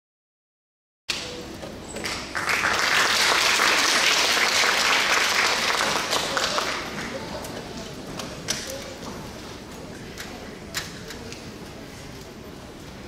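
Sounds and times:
audience applauding: 2.0 - 7.2.

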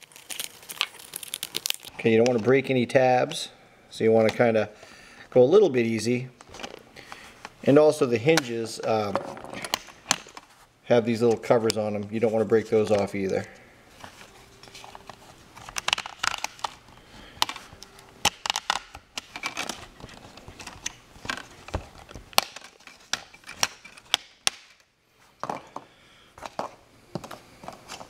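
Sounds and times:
plastic tabs clicking and cracking: 14.9 - 24.9.

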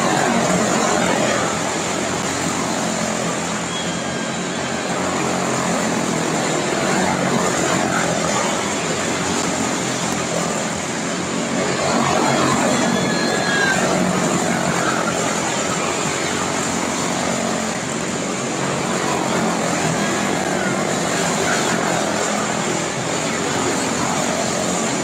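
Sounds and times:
small race car engines buzzing: 0.0 - 25.0.

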